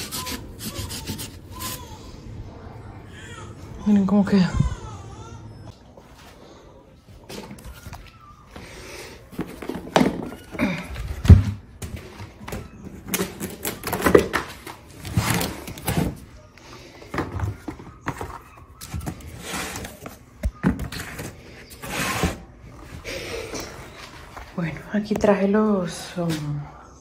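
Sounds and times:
objects knocking and thudding: 0:09.3 - 0:16.2.

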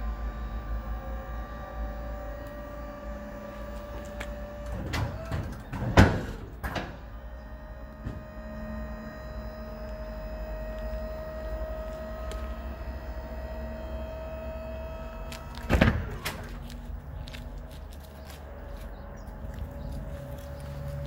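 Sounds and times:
hydraulic pump whining: 0:00.0 - 0:18.6
tail lift platform clunk: 0:02.3 - 0:12.6.

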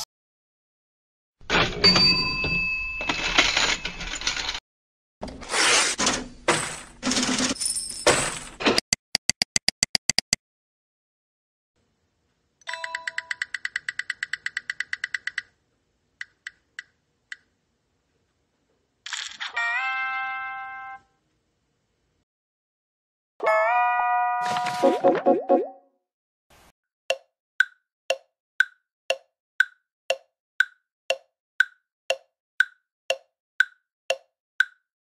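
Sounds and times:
prize wheel ticker clicking: 0:12.7 - 0:15.5.

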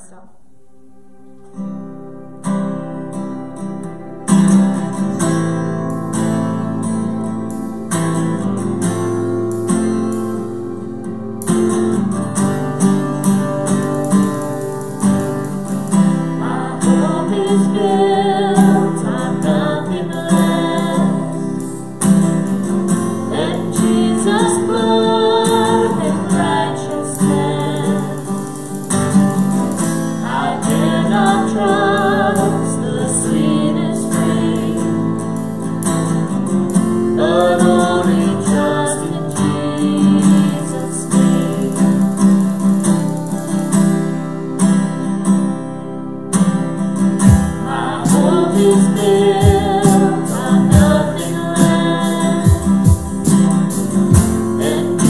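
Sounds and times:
acoustic guitar strumming: 0:00.0 - 0:55.0
cajon beat: 0:13.2 - 0:16.4, 0:27.4 - 0:32.6, 0:40.3 - 0:44.2, 0:47.2 - 0:55.0
woman and man singing: 0:16.3 - 0:22.0, 0:23.1 - 0:29.0, 0:30.0 - 0:35.4, 0:37.0 - 0:42.5, 0:47.3 - 0:55.0.

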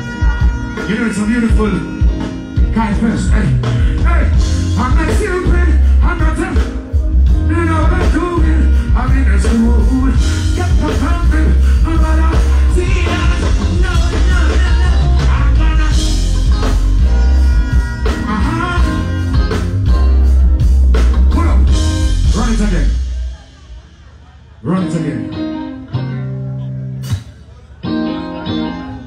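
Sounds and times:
heavy bass line: 0:00.0 - 0:27.4
live reggae band: 0:00.0 - 0:29.0
person singing: 0:07.5 - 0:16.7.

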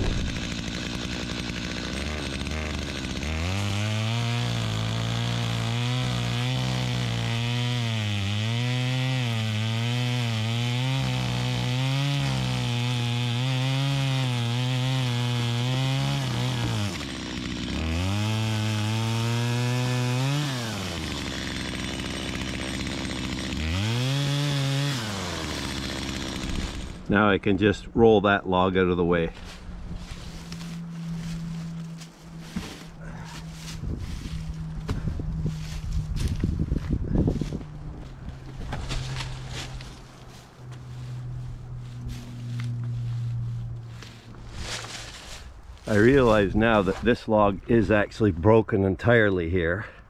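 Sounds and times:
chainsaw cutting log: 0:00.0 - 0:27.4, 0:29.4 - 0:48.0.

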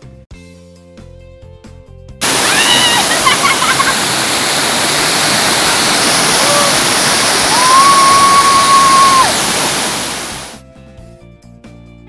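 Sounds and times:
waterfall crashing onto rocks: 0:02.2 - 0:10.6.

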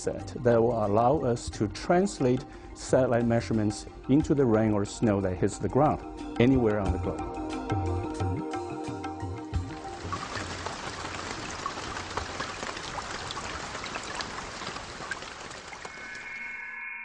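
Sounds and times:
music: 0:00.0 - 0:11.1
steady rain falling: 0:09.6 - 0:16.4
high ringing tone: 0:15.9 - 0:17.0.

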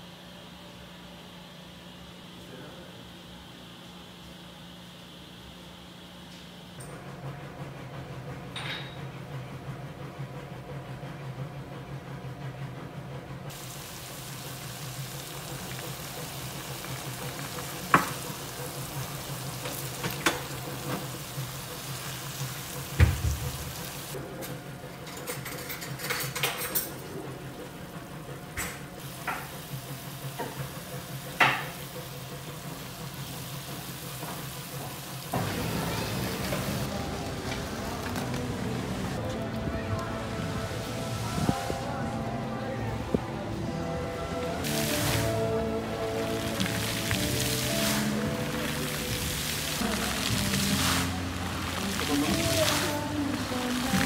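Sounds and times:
food sizzling in a wok: 0:13.5 - 0:24.2, 0:29.0 - 0:37.4, 0:44.6 - 0:54.0
loud background sound: 0:35.3 - 0:54.0.

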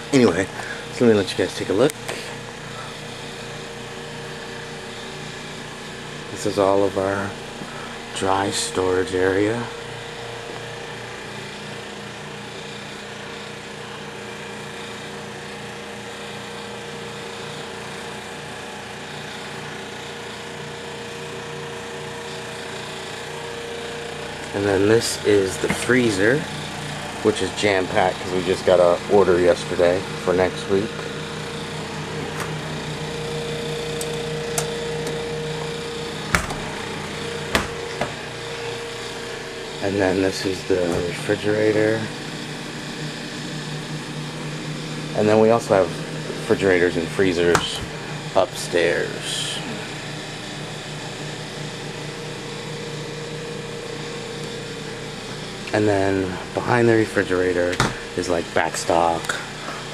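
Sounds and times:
machinery drone: 0:00.0 - 0:59.9
sharp knocks: 0:36.3 - 0:36.7, 0:37.5 - 0:38.2.

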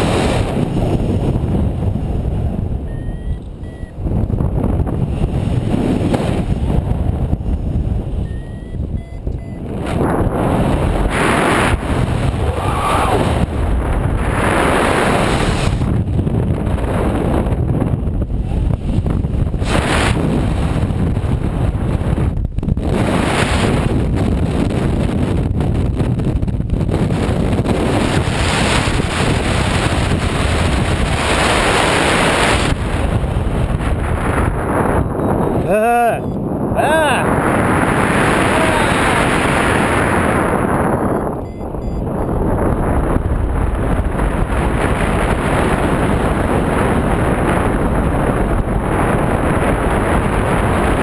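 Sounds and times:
wind rushing over microphone: 0:00.0 - 0:51.0
faint short beeps: 0:02.9 - 0:04.0, 0:08.2 - 0:09.6, 0:35.8 - 0:36.5, 0:41.4 - 0:42.3.

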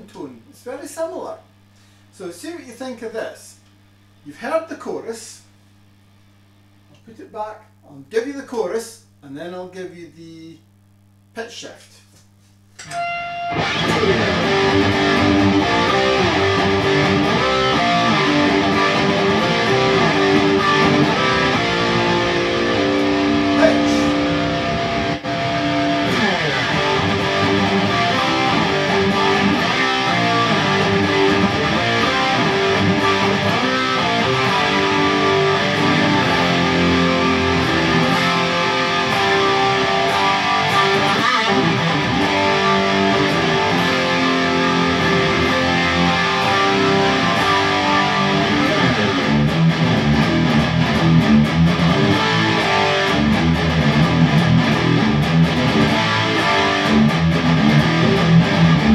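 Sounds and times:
overdriven electric guitar riffs: 0:12.8 - 0:58.9.

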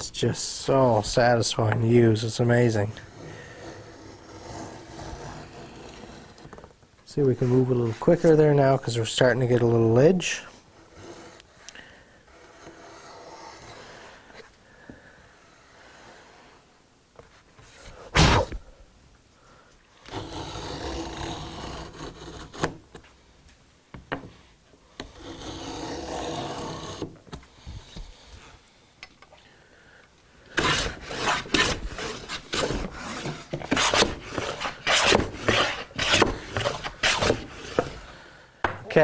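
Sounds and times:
hand router plane scraping wood: 0:00.9 - 0:08.6, 0:10.3 - 0:14.5, 0:20.1 - 0:23.0, 0:25.0 - 0:28.3, 0:30.5 - 0:38.2.

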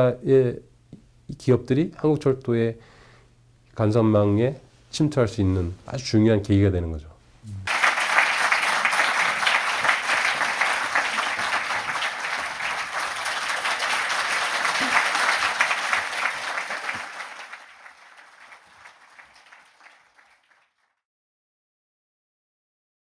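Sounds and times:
audience applauding: 0:07.7 - 0:21.0.

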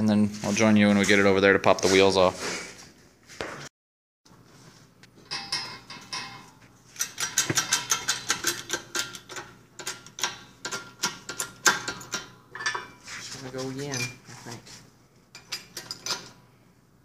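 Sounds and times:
metallic clicks and clanks: 0:05.2 - 0:13.0, 0:15.3 - 0:16.4.

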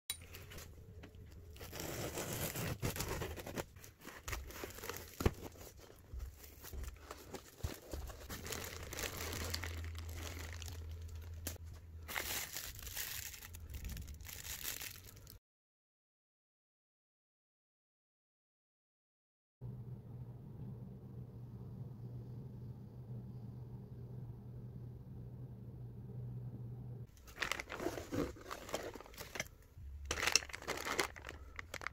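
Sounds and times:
plastic wrap crinkling: 0:01.2 - 0:15.4, 0:27.1 - 0:31.9
packing tape tearing: 0:01.5 - 0:05.8, 0:27.2 - 0:29.5, 0:30.1 - 0:31.9
cardboard flaps rustling: 0:01.6 - 0:10.8, 0:27.2 - 0:29.4.

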